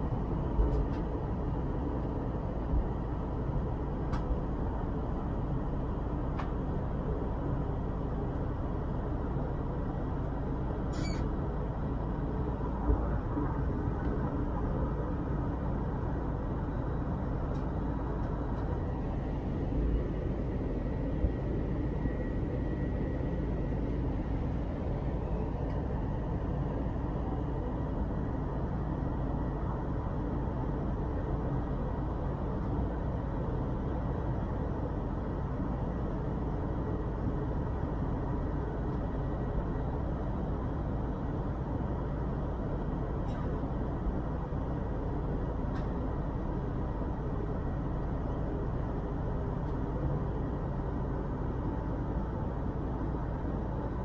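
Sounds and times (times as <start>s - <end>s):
airplane cabin engine noise: 0.0s - 54.0s
faint steady tones: 4.6s - 43.1s.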